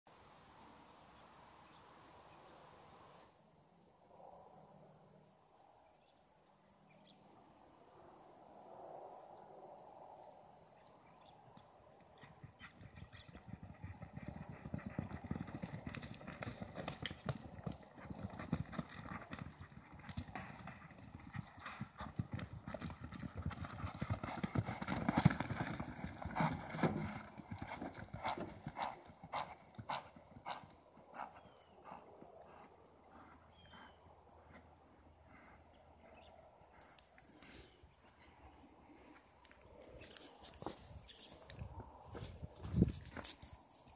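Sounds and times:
hooves galloping on dirt: 0:11.6 - 0:36.8, 0:39.6 - 0:43.9.

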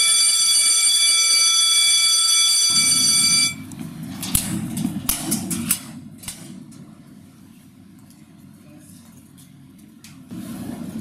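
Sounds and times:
electronic school bell buzz: 0:00.0 - 0:03.6
locker doors clanking: 0:00.0 - 0:07.0
hallway bustle: 0:00.0 - 0:11.0.

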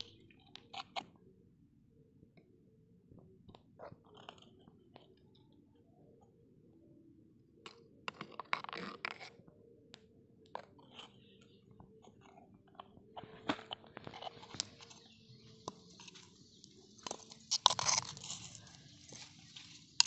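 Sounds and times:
spoon clicking and scraping in pot: 0:17.0 - 0:20.0.

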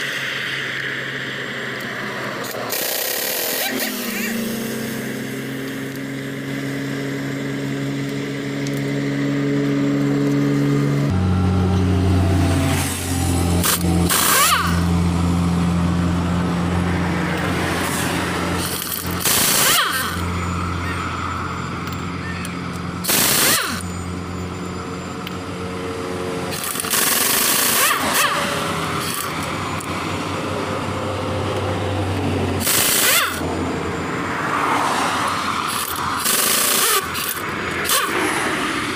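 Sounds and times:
pneumatic impact wrench hammering: 0:02.4 - 0:06.2, 0:12.7 - 0:15.0, 0:17.4 - 0:21.0, 0:21.8 - 0:24.2, 0:26.4 - 0:30.0, 0:31.5 - 0:33.5, 0:35.3 - 0:38.9.

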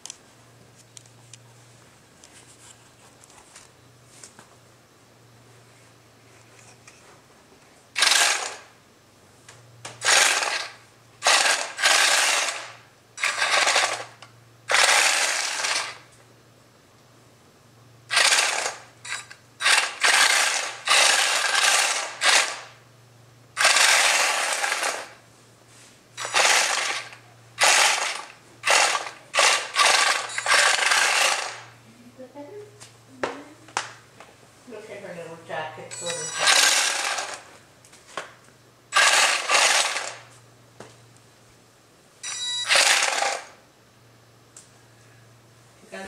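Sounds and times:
toy tank motors whirring: 0:08.0 - 0:08.7, 0:10.0 - 0:16.1, 0:18.1 - 0:22.8, 0:23.6 - 0:25.2, 0:26.2 - 0:31.7, 0:36.0 - 0:37.5, 0:38.9 - 0:40.3, 0:42.3 - 0:43.6.

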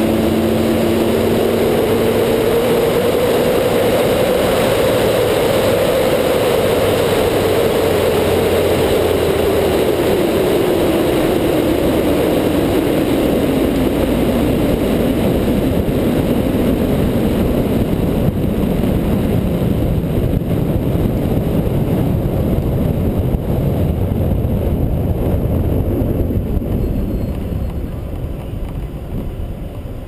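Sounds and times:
car engine drone: 0:00.0 - 0:30.0
road noise: 0:00.0 - 0:30.0
wind rushing: 0:00.0 - 0:30.0.

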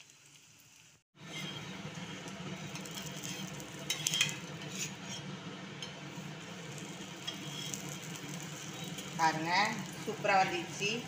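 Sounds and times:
flatbread sizzling in a pan: 0:00.0 - 0:11.0
steel spatula scraping a pan: 0:01.2 - 0:01.8, 0:02.7 - 0:06.0, 0:07.1 - 0:09.1.

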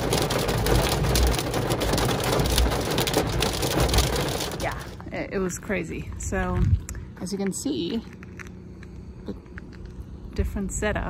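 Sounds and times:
hail drumming on car roof: 0:00.0 - 0:05.0
low rumble: 0:00.0 - 0:11.0.

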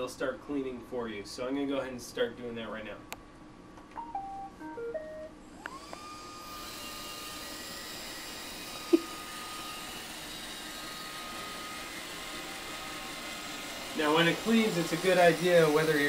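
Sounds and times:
robot vacuum whirring hum: 0:05.4 - 0:16.0.

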